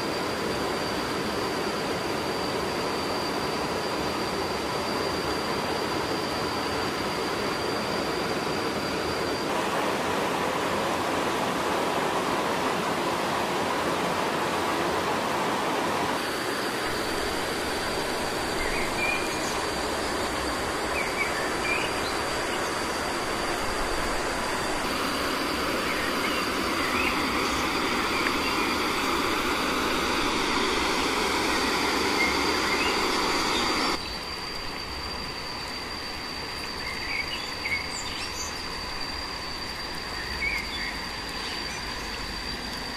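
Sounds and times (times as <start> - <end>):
high insect whine: 0.0 - 42.9
bird chirps: 20.8 - 22.8, 25.7 - 29.1, 40.2 - 42.3.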